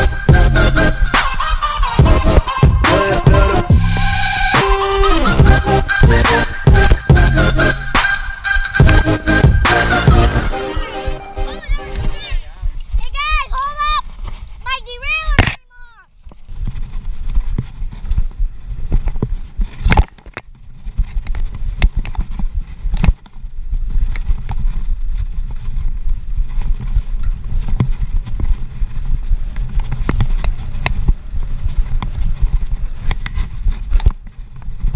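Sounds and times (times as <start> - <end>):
mountain bike rattling and knocking: 16.2 - 34.9
wind rumble on microphone: 16.2 - 34.9.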